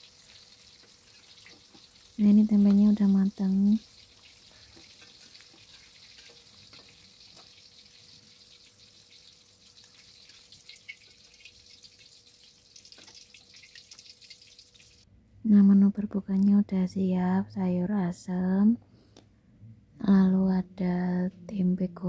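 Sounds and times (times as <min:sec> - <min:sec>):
food sizzling in oil: 0:00.0 - 0:15.1.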